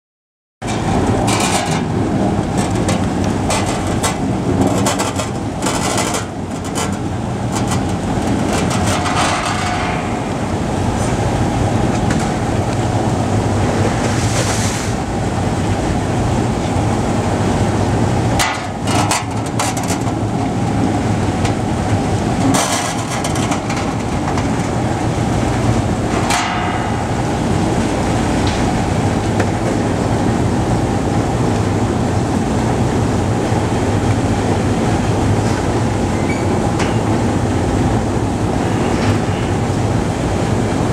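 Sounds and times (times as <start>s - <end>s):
washing machine humming: 0.6s - 40.9s
water spray noise: 13.9s - 15.0s.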